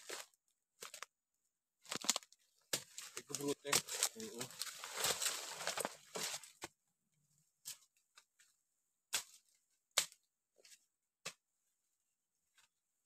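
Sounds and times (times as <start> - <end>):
footsteps crunching through dry leaves: 2.8 - 6.6.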